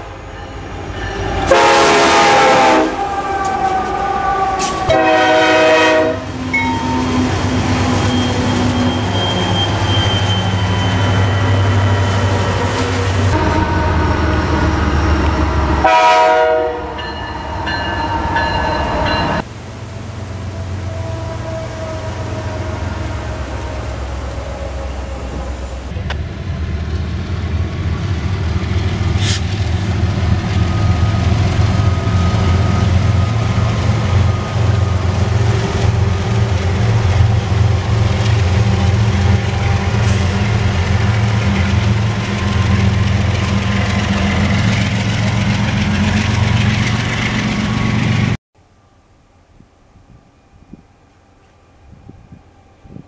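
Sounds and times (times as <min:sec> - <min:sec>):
diesel locomotive drone: 0:00.0 - 0:53.0.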